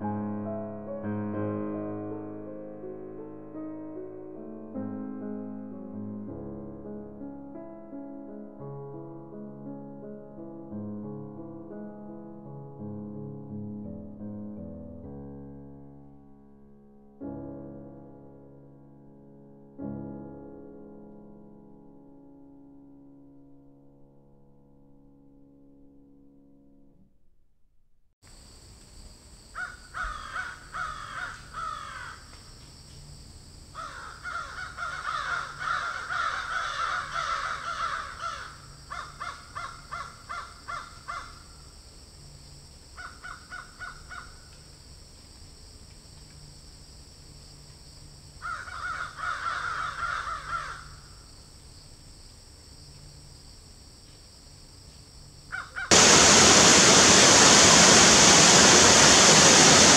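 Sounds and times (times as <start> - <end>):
waterfall rushing: 55.9 - 59.9.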